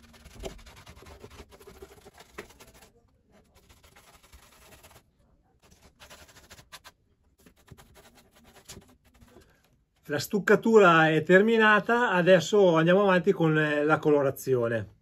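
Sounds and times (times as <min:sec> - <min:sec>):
paintbrush scratching and dabbing: 0:00.0 - 0:09.5.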